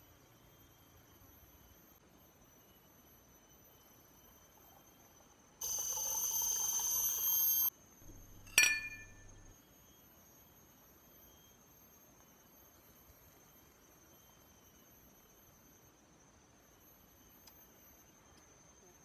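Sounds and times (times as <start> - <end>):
water pouring into a glass: 5.6 - 7.7
glass clinking: 8.1 - 9.5.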